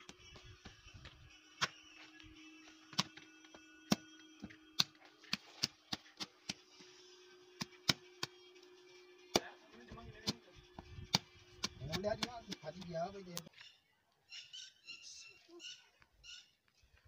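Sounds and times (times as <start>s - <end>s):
hands slapping wet clay: 4.8s - 6.6s.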